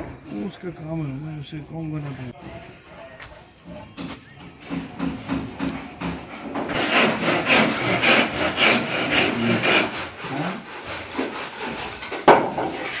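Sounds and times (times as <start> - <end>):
hand saw cutting wood: 4.8 - 13.0.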